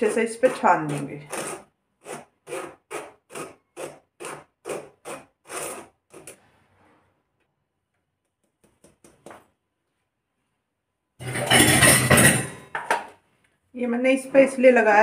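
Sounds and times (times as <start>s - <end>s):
spoon scraping through mesh strainer: 0.0s - 3.6s, 11.2s - 12.5s.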